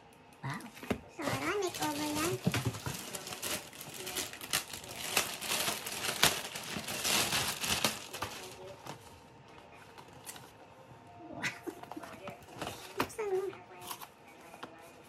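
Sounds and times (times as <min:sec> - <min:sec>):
plastic packaging crinkling: 0:01.1 - 0:09.1.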